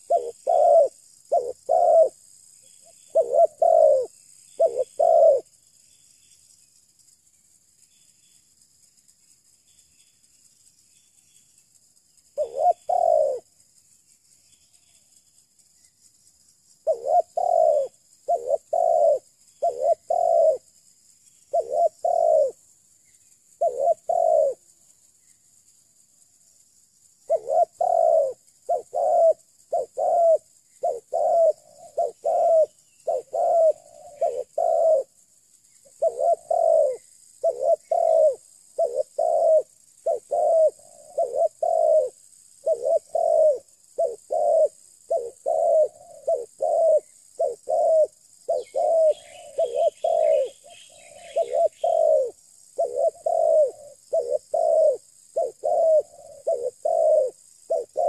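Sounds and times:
dove cooing: 0:00.0 - 0:02.2, 0:02.8 - 0:05.6, 0:12.4 - 0:13.5, 0:16.8 - 0:20.7, 0:21.5 - 0:22.7, 0:23.5 - 0:24.7, 0:27.3 - 0:35.2, 0:35.8 - 0:58.0
small bird twittering: 0:00.0 - 0:06.4, 0:27.3 - 0:35.1, 0:35.7 - 0:58.0.

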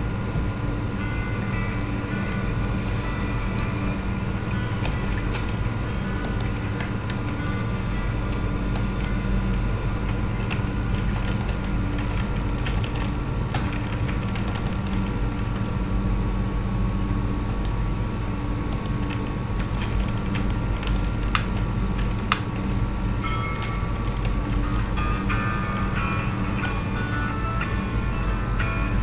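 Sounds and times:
steady hum: 0:00.0 - 0:29.0
keyboard keys clicking: 0:04.8 - 0:15.7, 0:18.7 - 0:22.8.

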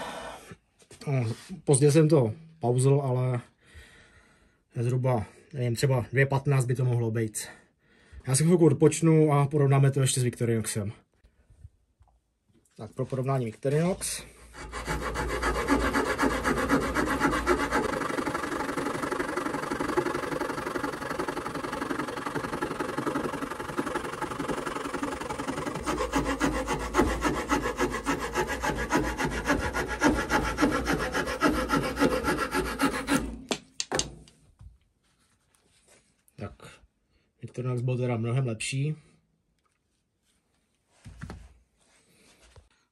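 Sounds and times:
saw cutting wood: 0:13.7 - 0:33.5.

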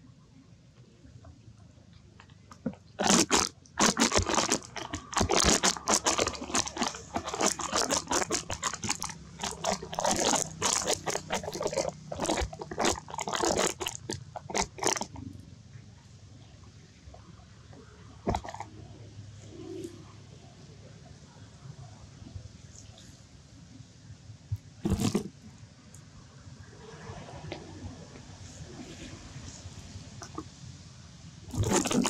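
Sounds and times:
monkey chewing fruit: 0:02.5 - 0:15.3, 0:18.3 - 0:18.7, 0:24.8 - 0:25.3, 0:31.5 - 0:32.0.

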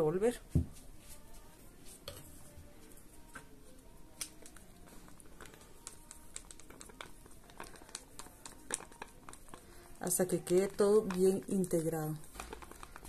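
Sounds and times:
wooden stick scraping plastic cup: 0:05.1 - 0:13.0.

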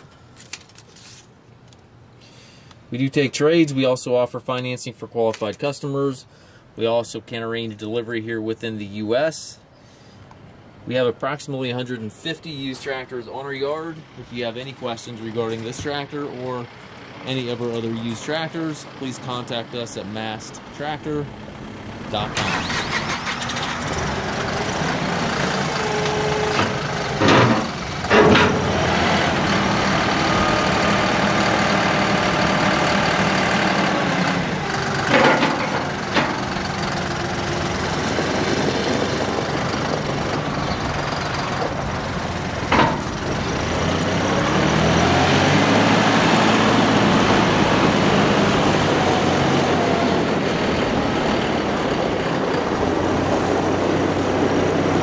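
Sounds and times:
tractor diesel engine running: 0:11.7 - 0:55.0.

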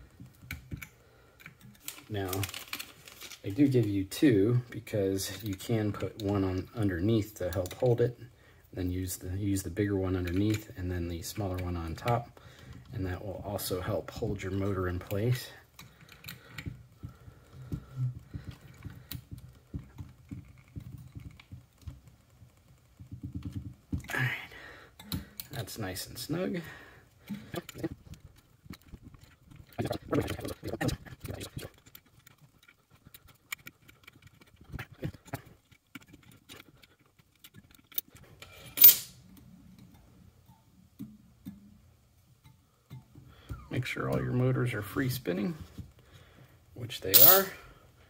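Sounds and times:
wrench clattering down: 0:38.0 - 0:39.2, 0:47.1 - 0:47.6.

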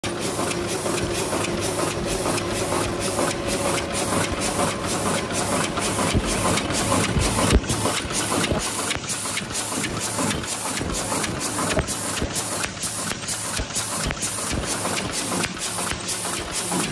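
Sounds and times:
machine cycling rhythmically: 0:00.0 - 0:16.9
machine hum and hiss: 0:00.0 - 0:16.9.

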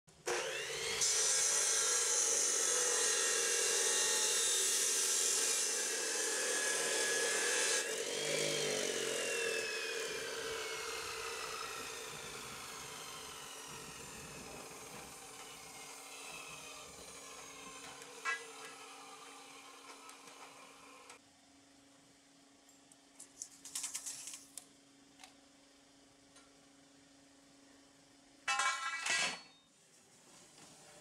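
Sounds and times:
angle grinder grinding steel: 0:00.3 - 0:21.2.

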